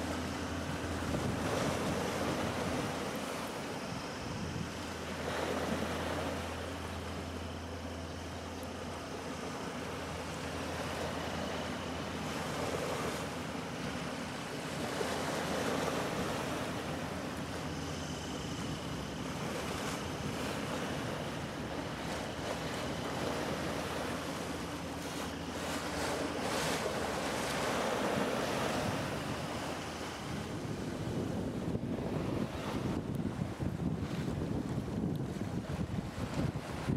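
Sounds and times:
choppy river water washing: 0.0s - 36.9s
wind buffeting microphone: 0.6s - 3.2s, 3.8s - 6.2s, 25.6s - 36.9s.

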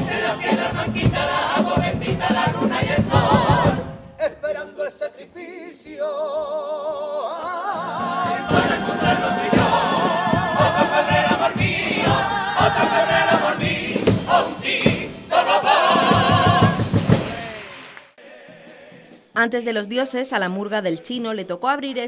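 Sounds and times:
percussion beats: 0.0s - 4.3s, 8.0s - 20.8s
male choir singing with vibrato: 0.0s - 19.2s
guitars playing: 7.8s - 15.1s.

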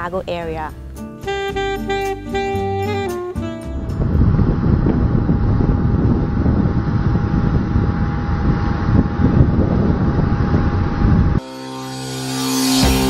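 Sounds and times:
jet engines rumbling and whining: 3.6s - 11.4s.

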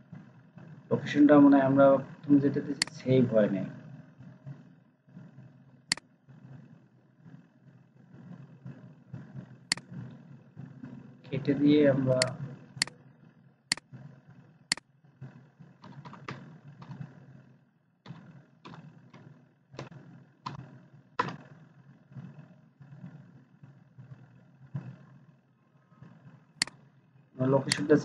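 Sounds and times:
low steady hum: 0.0s - 28.0s
keyboard keystrokes: 15.8s - 17.0s.

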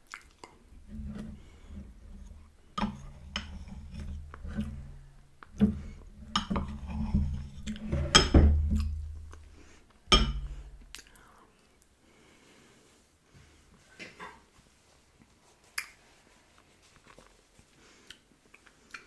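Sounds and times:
low steady hum: 0.0s - 12.3s.

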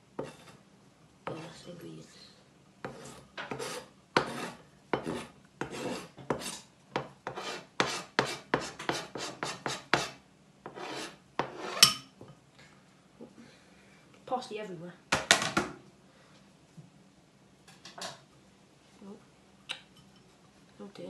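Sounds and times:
knife scraping plastic board: 0.2s - 0.6s, 2.8s - 11.9s.

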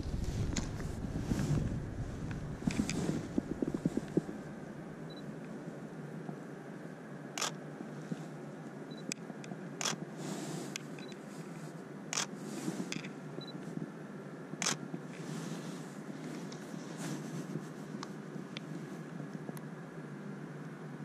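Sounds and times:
soft rustling: 0.0s - 4.6s, 15.0s - 19.5s
camera shutter firing: 7.4s - 7.6s
small clicks: 7.4s - 7.6s.

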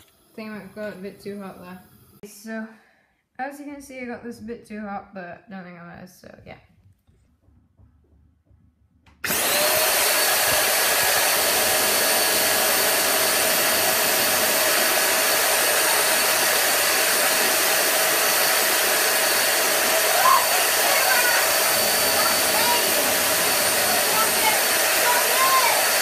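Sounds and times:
vacuum cleaner running: 0.0s - 2.2s, 9.2s - 26.0s.

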